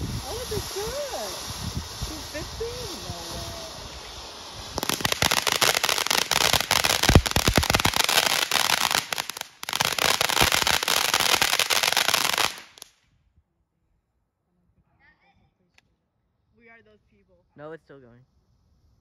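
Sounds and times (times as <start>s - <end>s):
fountain firework crackling hiss: 0.0s - 13.0s
loud firework pop: 7.0s - 8.0s.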